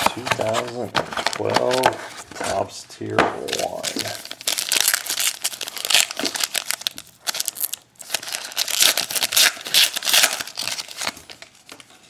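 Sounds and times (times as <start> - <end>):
foil wrapper crinkling: 3.5 - 11.9.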